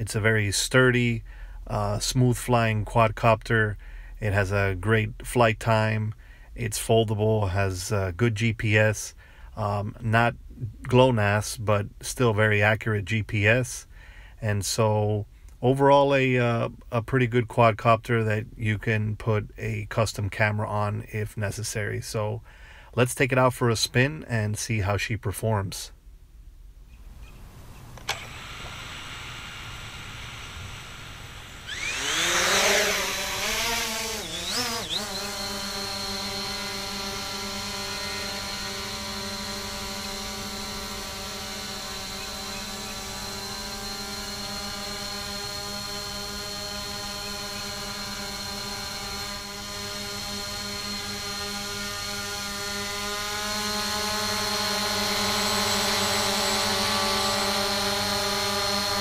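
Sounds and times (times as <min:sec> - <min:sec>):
drone propellers buzzing whine: 0:27.5 - 0:59.0.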